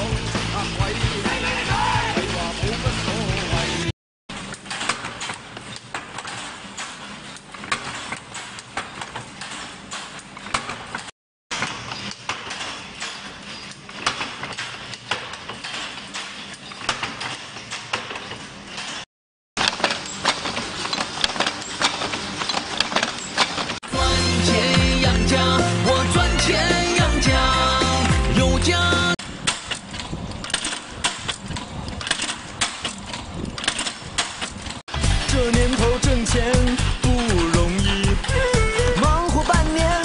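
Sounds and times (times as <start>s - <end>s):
chain-making machinery clattering: 4.3s - 23.8s, 29.2s - 40.0s
chain-making machine clacking: 29.2s - 40.0s.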